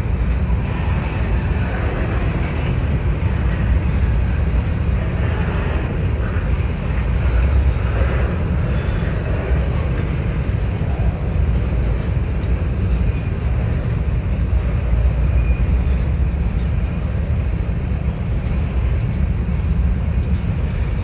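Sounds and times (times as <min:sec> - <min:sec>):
train wheels rumbling on rail: 0:00.0 - 0:21.0
wheel squeals: 0:15.2 - 0:16.7.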